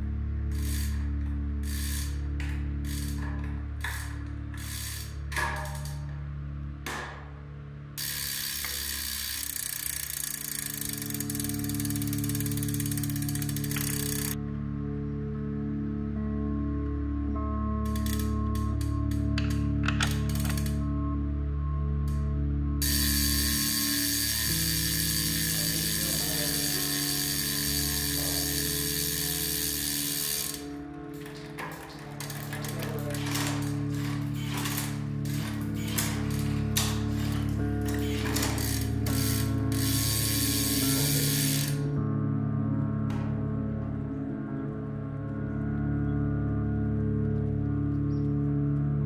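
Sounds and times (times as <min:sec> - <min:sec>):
background music: 0:00.0 - 0:49.0
bike hub freewheel clicking: 0:00.4 - 0:06.1, 0:08.0 - 0:14.4, 0:17.8 - 0:20.9, 0:22.8 - 0:42.0.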